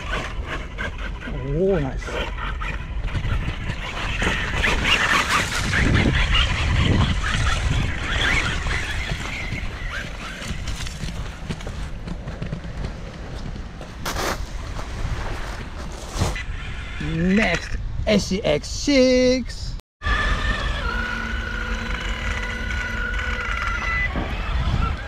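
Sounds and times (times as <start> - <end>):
tires churning through sand: 0.0 - 17.4
wind buffeting microphone: 0.0 - 18.7, 23.9 - 25.0.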